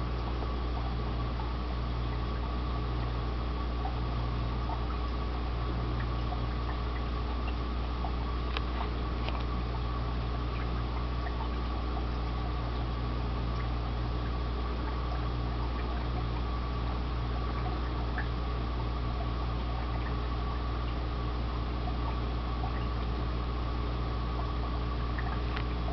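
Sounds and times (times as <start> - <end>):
aquarium equipment humming: 0.0 - 25.9
air bubbles: 3.7 - 23.4, 24.3 - 25.9
water trickling: 3.8 - 23.3, 24.3 - 25.9
small ticks and pops: 4.6 - 9.6, 25.1 - 25.9.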